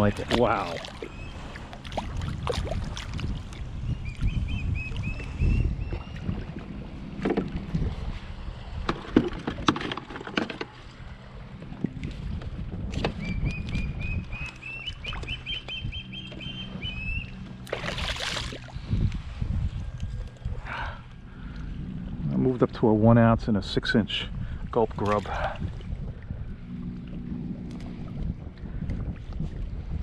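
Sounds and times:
water splashing: 0:00.0 - 0:03.8, 0:17.4 - 0:18.8.

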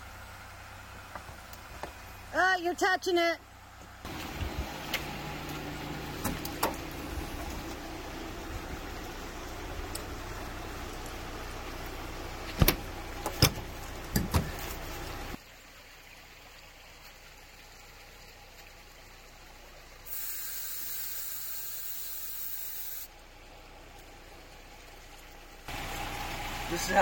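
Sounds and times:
vehicle running noise: 0:00.0 - 0:02.8, 0:03.4 - 0:15.4, 0:23.1 - 0:27.0
air hissing out: 0:20.1 - 0:23.1.

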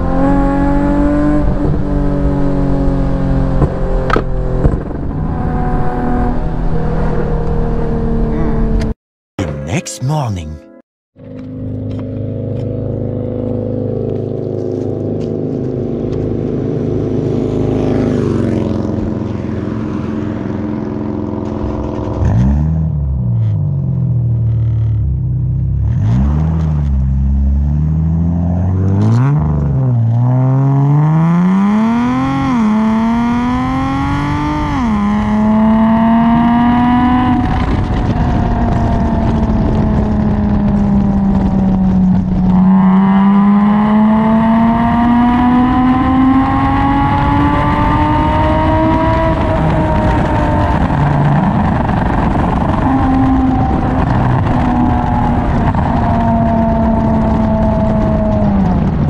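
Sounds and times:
car engine idling and revving: 0:00.0 - 0:08.9, 0:11.2 - 0:59.0
car accelerating with upshifts: 0:25.8 - 0:59.0.

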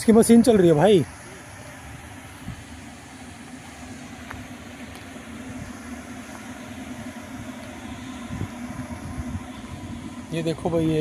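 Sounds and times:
wind turbine machinery humming: 0:00.0 - 0:11.0
wind rumble on microphone: 0:07.4 - 0:11.0.

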